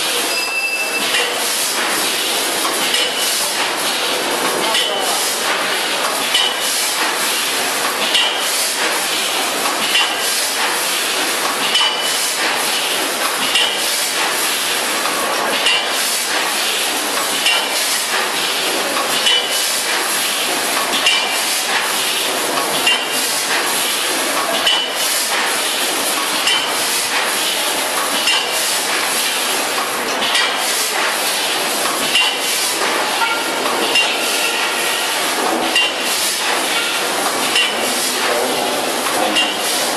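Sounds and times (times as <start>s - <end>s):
machine knocks and clinks: 0.3s - 1.4s, 2.6s - 3.4s, 6.1s - 6.6s, 11.6s - 12.6s, 13.2s - 13.8s, 19.0s - 19.5s, 20.8s - 21.4s, 22.7s - 23.2s, 24.5s - 25.0s, 26.3s - 27.3s, 28.0s - 28.6s, 30.2s - 31.1s, 32.0s - 34.2s, 35.5s - 37.9s, 39.3s - 39.7s
packing machine clatter: 0.9s - 39.9s.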